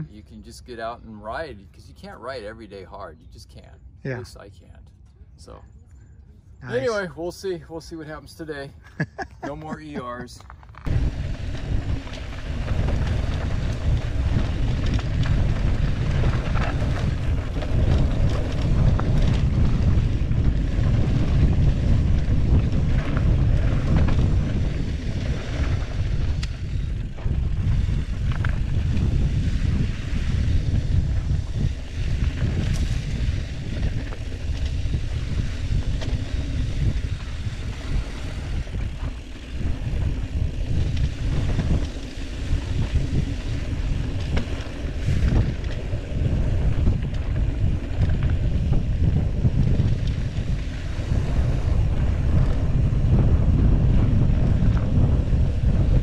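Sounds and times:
tyres on dirt trail: 0.0s - 56.0s
wind buffeting microphone: 5.4s - 56.0s
faint bike clicks: 10.4s - 53.6s.

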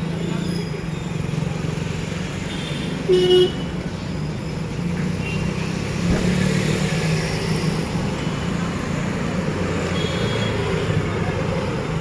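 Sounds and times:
street traffic hum: 0.0s - 12.0s
car horn toot: 2.7s - 3.7s.

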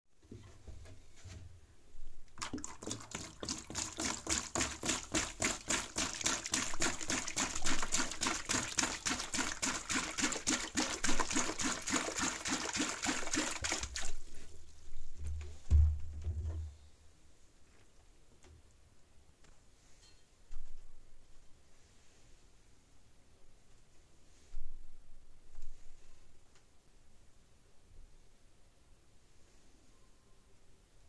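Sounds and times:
water pouring into plastic tub: 2.3s - 14.5s
low thump: 15.2s - 16.8s.

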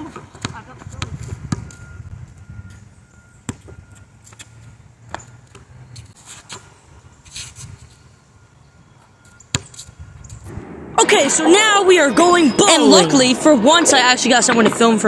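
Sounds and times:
basketball bouncing: 0.0s - 1.8s, 3.4s - 3.8s
low rumble: 10.4s - 13.6s.

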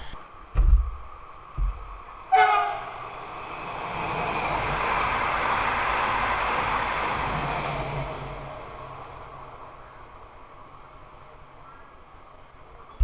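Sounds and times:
train wheels rushing on rail: 0.0s - 11.6s
low thumps: 0.5s - 2.2s
train horn blast: 2.3s - 3.0s.

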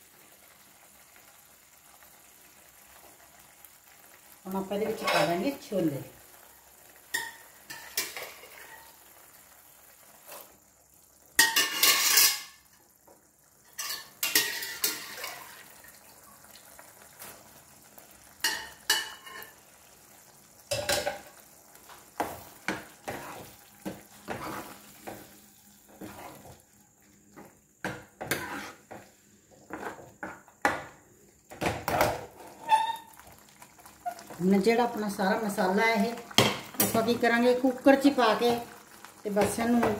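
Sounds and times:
ladle stirring in a pan: 2.7s - 10.8s, 11.4s - 13.0s, 13.6s - 30.4s, 31.9s - 34.7s
utensils scraping a pan: 23.0s - 25.2s, 25.9s - 26.6s, 28.2s - 29.0s.

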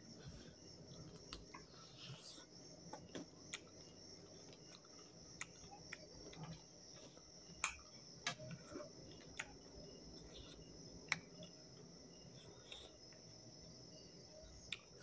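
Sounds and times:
faint high-pitched whine: 0.0s - 15.0s
mouth clicks and smacks chewing: 0.9s - 1.7s, 3.4s - 9.6s.

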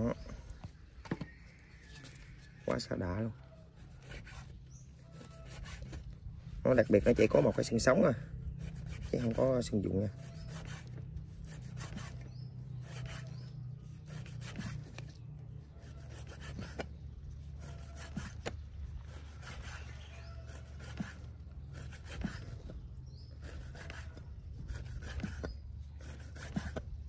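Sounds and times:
steady low hum: 0.0s - 27.0s
knife cutting and scraping fish: 3.7s - 27.0s.

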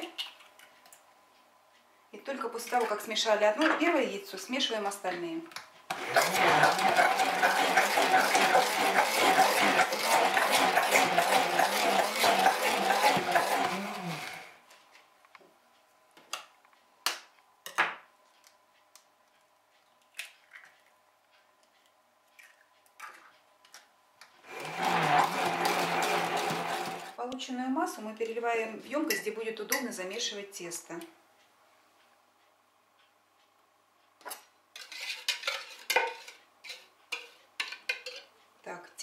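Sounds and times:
stick blender running: 5.9s - 14.6s, 24.4s - 27.2s.

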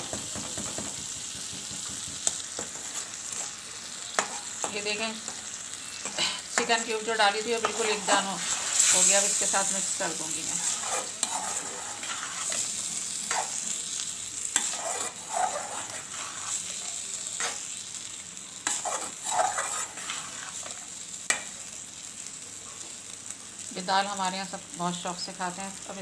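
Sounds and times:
food sizzling in a pan: 0.0s - 26.0s
metal spoon scraping a pan: 2.3s - 13.8s, 14.4s - 17.9s, 18.6s - 21.6s.

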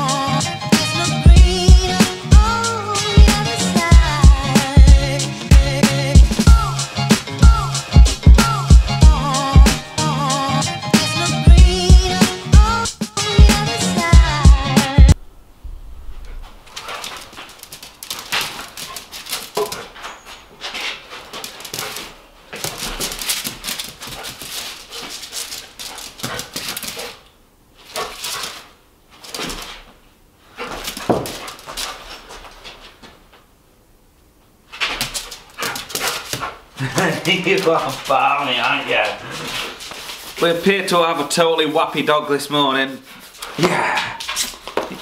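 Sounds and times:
dog paws scuffing on concrete: 16.2s - 27.2s, 27.8s - 33.5s, 34.7s - 45.0s
dog panting: 16.7s - 27.3s, 35.2s - 38.1s, 39.1s - 40.4s, 43.0s - 43.6s.

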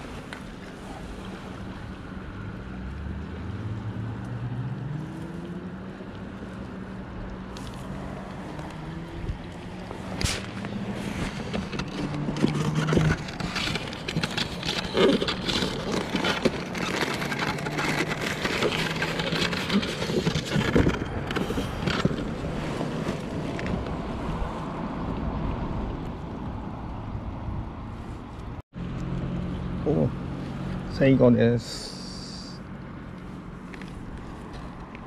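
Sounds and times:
plastic lid clattering and rustling: 10.2s - 23.8s.

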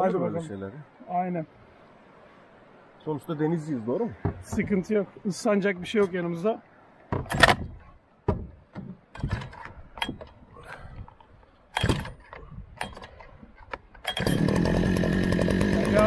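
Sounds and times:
knocks and clatters: 7.1s - 10.4s, 11.7s - 14.2s
outboard motor buzzing: 14.0s - 16.0s.

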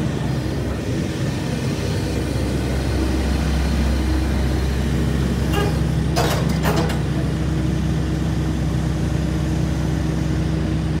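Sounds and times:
excavator diesel engine running: 0.0s - 11.0s
mechanical clattering and creaking: 5.5s - 7.2s.

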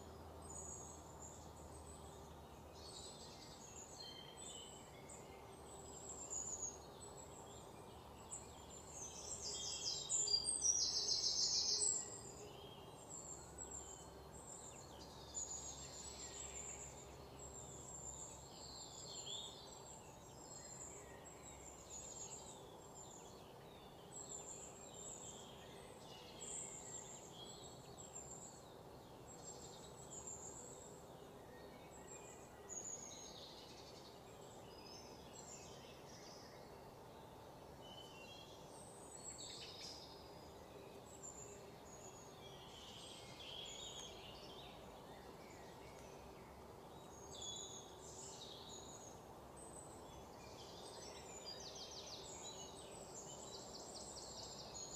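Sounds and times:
faint birdsong chirps: 0.0s - 54.9s.

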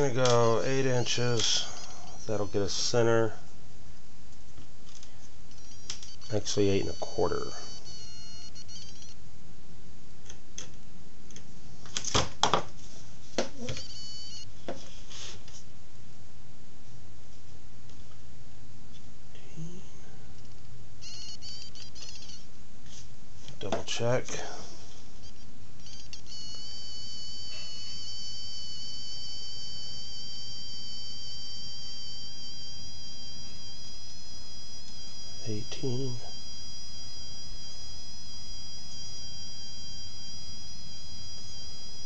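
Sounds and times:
high-pitched whine: 0.0s - 3.6s, 4.9s - 9.2s, 23.6s - 42.0s
faint low hum: 0.0s - 42.0s.

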